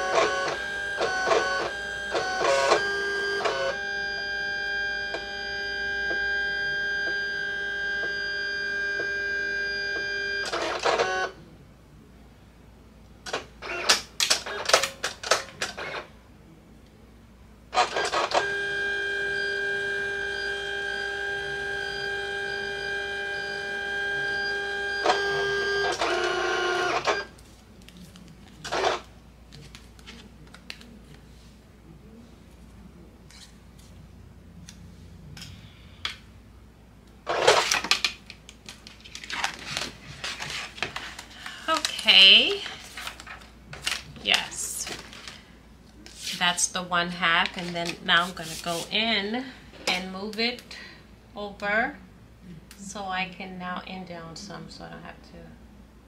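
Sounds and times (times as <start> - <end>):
cutting machine motors whining: 0.0 - 11.3, 17.9 - 27.3.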